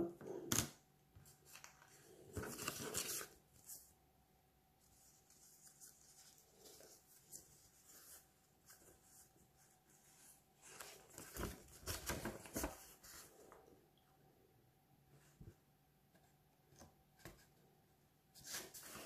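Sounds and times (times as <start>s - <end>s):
paper rustling and crinkling: 0.5s - 3.9s, 4.8s - 13.6s, 18.4s - 19.0s.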